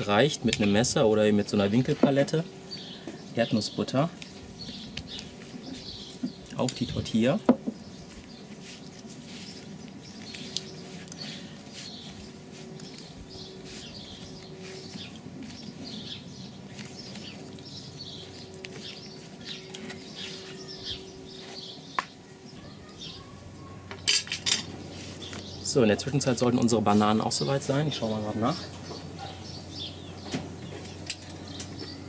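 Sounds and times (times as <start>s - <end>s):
faint steady hum: 0.0s - 32.0s
small birds chirping: 0.0s - 32.0s.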